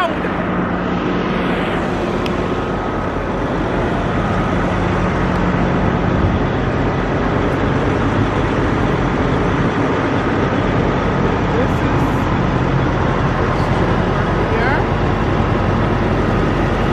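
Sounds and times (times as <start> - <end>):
truck diesel engine idling: 0.0 - 16.9.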